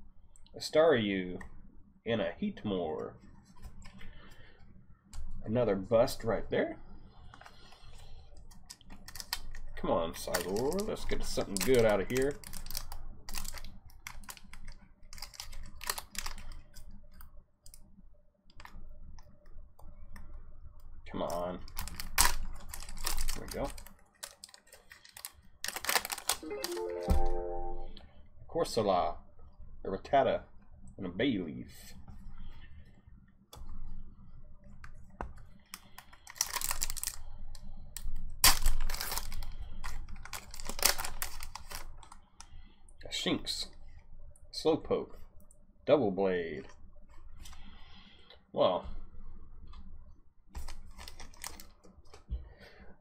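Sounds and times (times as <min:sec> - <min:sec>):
foil wrapper crinkling and tearing: 0:09.0 - 0:16.7, 0:21.3 - 0:27.1, 0:35.8 - 0:37.2, 0:38.0 - 0:42.2, 0:50.6 - 0:51.8.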